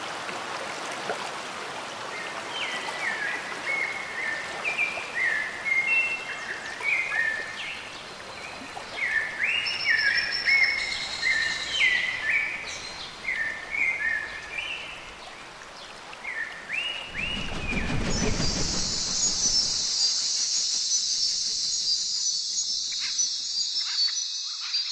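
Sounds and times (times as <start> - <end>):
steady background hiss: 2.0 - 24.9
birds chirping and whistling: 16.9 - 24.9.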